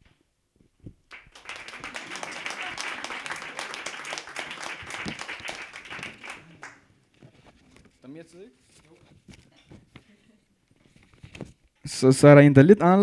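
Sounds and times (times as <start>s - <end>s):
audience applauding: 1.1s - 6.9s.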